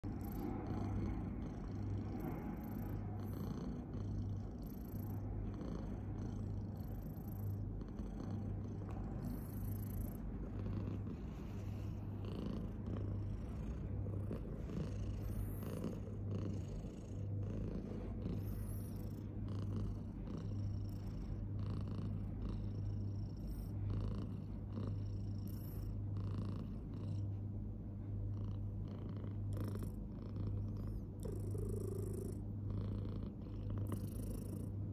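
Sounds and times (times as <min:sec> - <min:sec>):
cat purring: 0:00.0 - 0:34.9.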